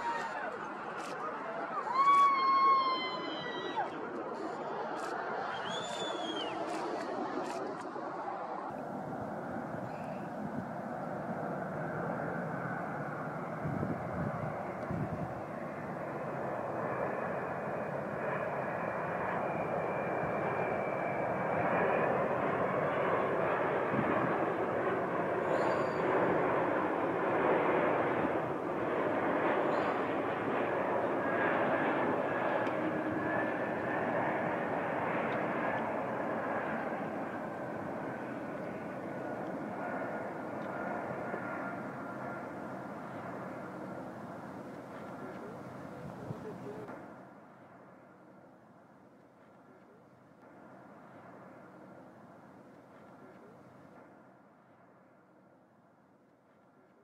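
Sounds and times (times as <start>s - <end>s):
jet engine roar: 0.0s - 54.6s
thin high whine: 25.4s - 26.3s.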